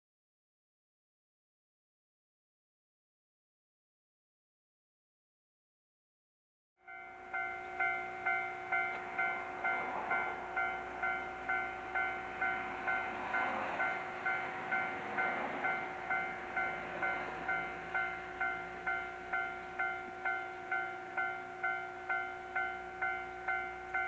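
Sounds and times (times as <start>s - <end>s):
level-crossing warning bell ringing: 6.8s - 24.0s.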